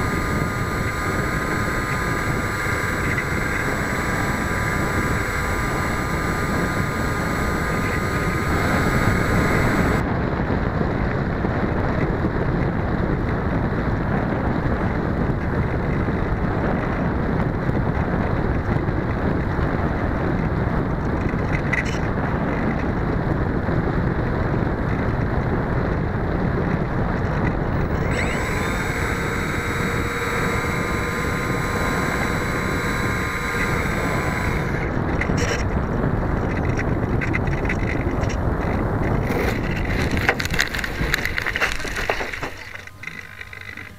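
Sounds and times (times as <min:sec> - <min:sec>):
high steady whine: 0:00.0 - 0:10.1, 0:27.2 - 0:43.9
model plane motor and propeller: 0:00.0 - 0:43.9
wind rushing over microphone: 0:00.0 - 0:43.9
scraping crackles on grass: 0:36.4 - 0:43.9.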